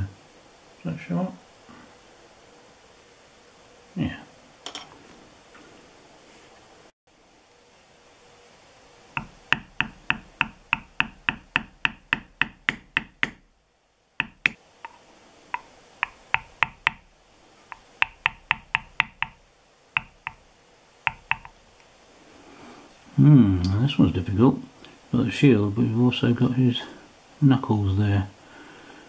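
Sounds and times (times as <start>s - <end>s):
mallet tapping metal stamp: 9.2s - 13.4s, 14.2s - 17.1s, 17.7s - 19.4s, 20.0s - 20.4s, 21.1s - 21.6s.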